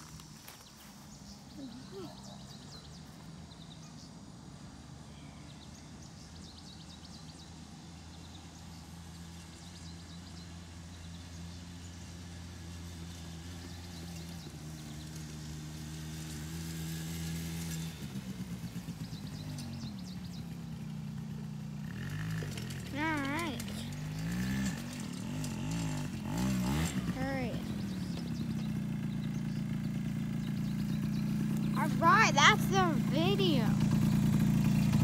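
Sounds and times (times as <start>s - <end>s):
atv engine passing: 0.0s - 35.0s.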